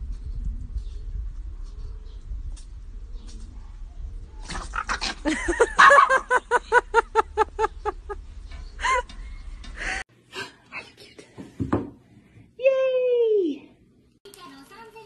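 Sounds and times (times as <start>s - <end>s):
dogs yapping barks: 4.4s - 6.4s.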